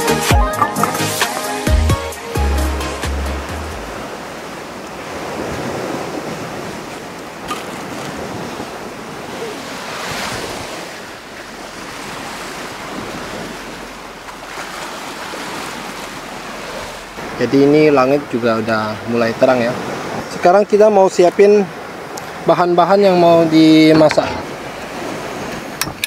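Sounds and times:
waves washing onto rocky shore: 3.4s - 26.0s
wind on microphone: 3.7s - 20.4s.

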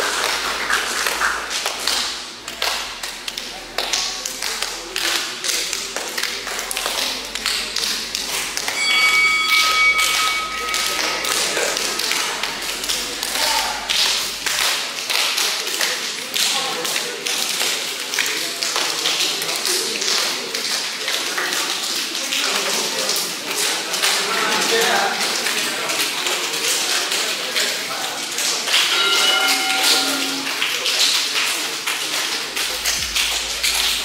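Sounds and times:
faint chatter: 0.0s - 34.0s
steady high tone: 6.8s - 14.7s, 28.8s - 31.0s.

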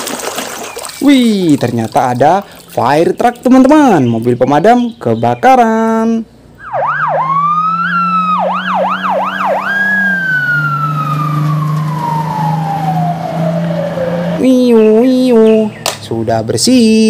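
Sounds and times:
fire truck siren: 6.6s - 15.0s.

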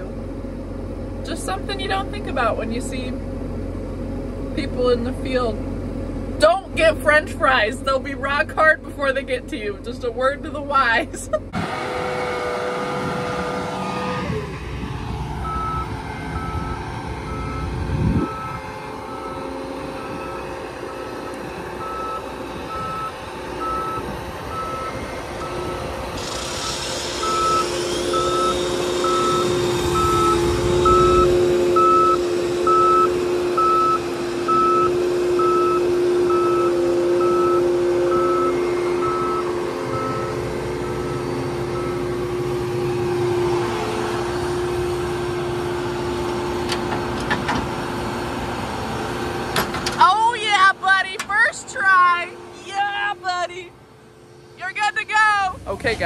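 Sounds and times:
combine engine running: 0.0s - 56.0s
reversing alarm beeping: 15.4s - 46.2s
hiss: 26.2s - 29.1s.

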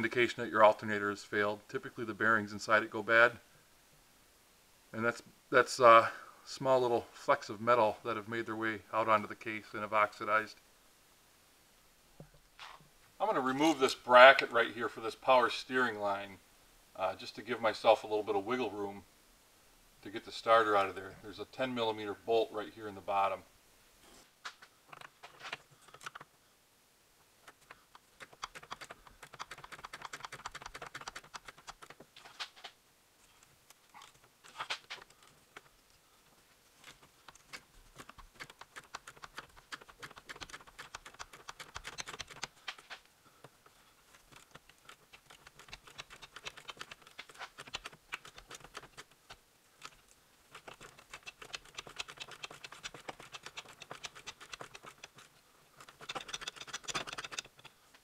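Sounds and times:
hand ratchet clicking: 38.0s - 42.5s, 55.8s - 57.7s.

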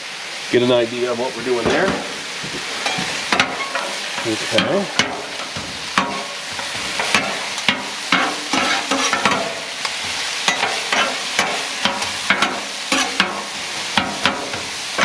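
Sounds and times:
food sizzling on griddle: 0.0s - 15.0s
metal spatulas scraping and clacking: 2.7s - 13.4s.

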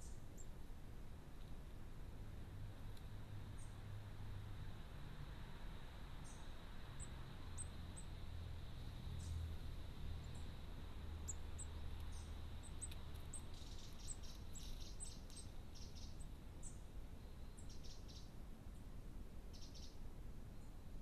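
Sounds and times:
small birds chirping: 0.0s - 0.6s, 2.9s - 3.8s, 6.2s - 18.9s, 19.5s - 21.0s
faint steady high whine: 0.0s - 21.0s.

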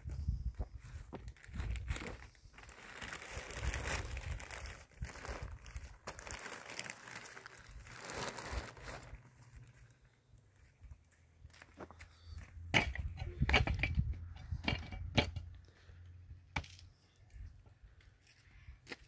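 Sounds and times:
rustling and crinkling: 0.0s - 12.6s.

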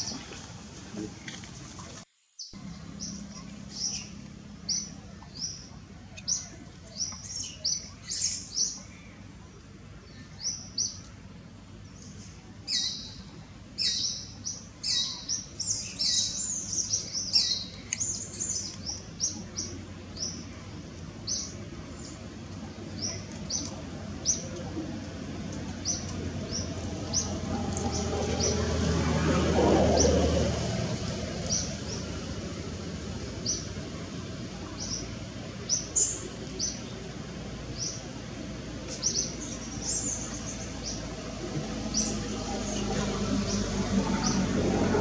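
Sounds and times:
birds chirping: 2.4s - 30.4s, 31.0s - 44.8s
low rumble: 23.9s - 35.3s.

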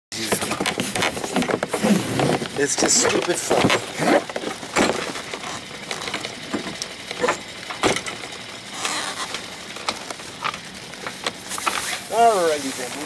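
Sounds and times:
short rustle: 11.1s - 13.0s.

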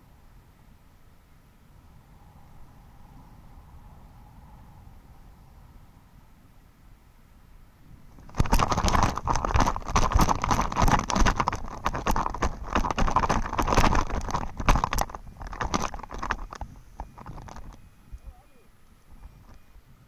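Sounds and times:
footsteps running on grass: 8.2s - 17.7s.

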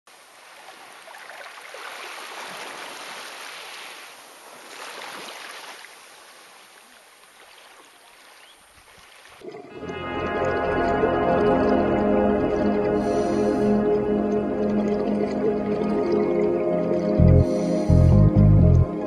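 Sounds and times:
small waves washing on beach: 0.1s - 10.6s.

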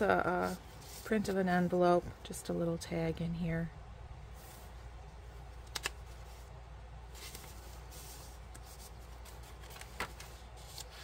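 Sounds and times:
paper rustling and sliding: 7.1s - 11.0s.

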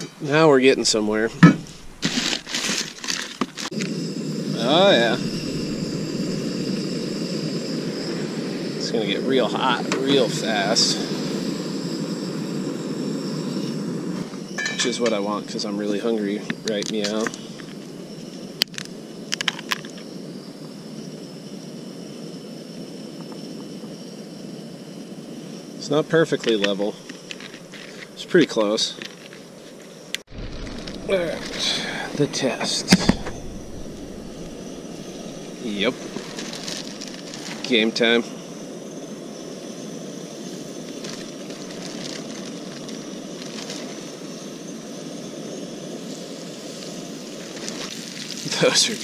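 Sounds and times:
camp stove roaring hiss: 0.0s - 49.0s
faint high whine: 0.0s - 49.0s
oil sizzling: 30.2s - 37.7s, 47.3s - 49.0s.

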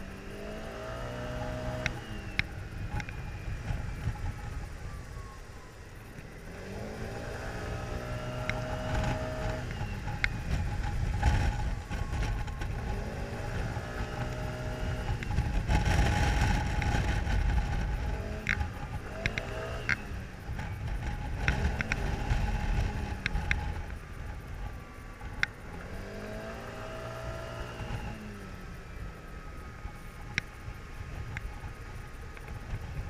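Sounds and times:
scooter engine revving: 0.0s - 33.0s
wind rumble on microphone: 0.0s - 33.0s
sharp clicks: 1.8s - 3.2s, 8.4s - 11.6s, 14.0s - 24.0s.

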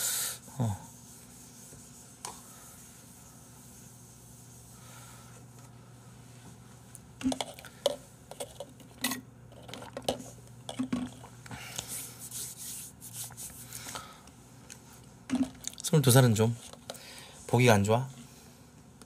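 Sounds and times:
plastic cup knocks and clicks: 9.7s - 11.2s.

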